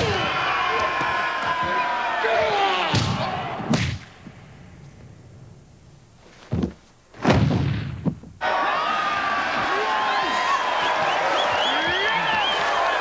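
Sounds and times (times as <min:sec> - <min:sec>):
heavy thumps: 0:06.2 - 0:08.4.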